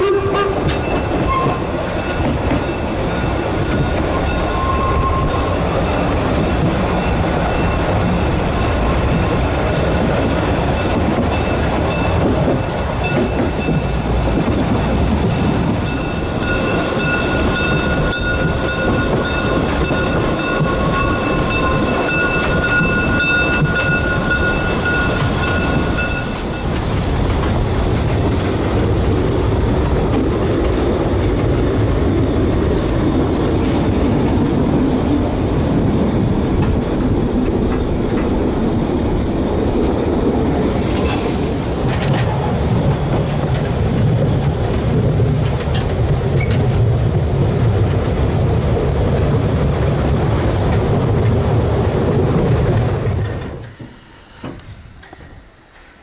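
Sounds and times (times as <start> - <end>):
train carriages rumbling on rails: 0.0 - 56.0
high ringing wheel squeal: 3.2 - 6.1.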